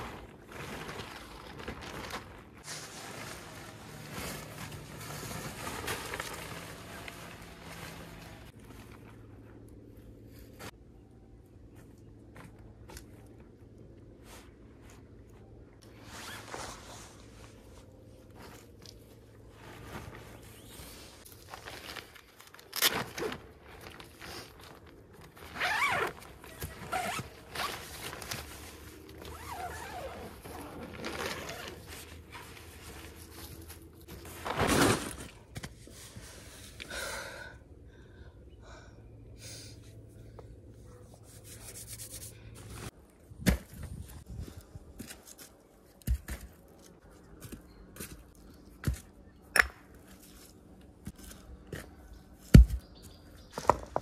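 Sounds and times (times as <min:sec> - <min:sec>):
scraping and rustling handling noise: 0:00.0 - 0:10.9, 0:11.7 - 0:36.6.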